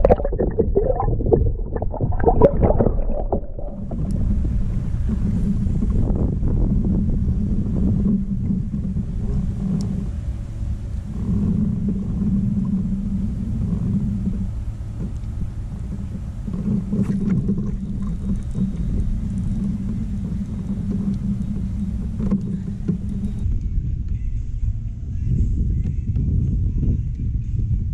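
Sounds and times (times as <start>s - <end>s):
wind buffeting microphone: 0.0s - 27.9s
faint clicks: 9.3s - 10.0s, 13.6s - 23.5s.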